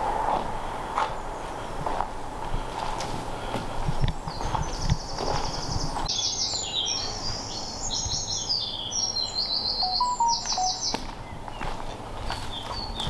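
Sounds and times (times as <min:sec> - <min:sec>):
songbird trilling: 0:05.6 - 0:11.0.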